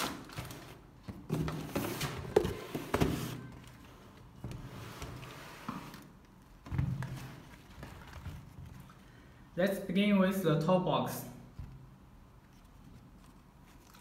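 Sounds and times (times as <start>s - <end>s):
cardboard boxes knocking and scraping: 1.1s - 3.5s.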